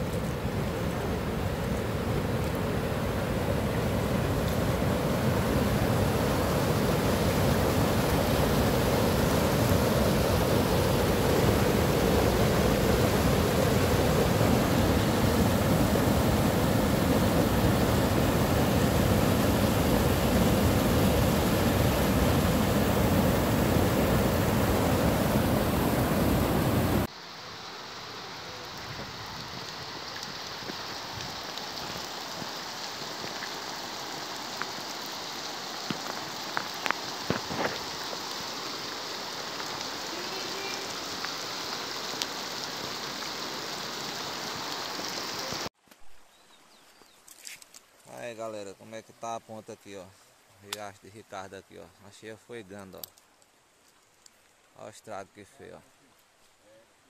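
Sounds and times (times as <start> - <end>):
heavy rain falling: 0.0 - 45.7
water rushing over a spillway: 0.0 - 45.7.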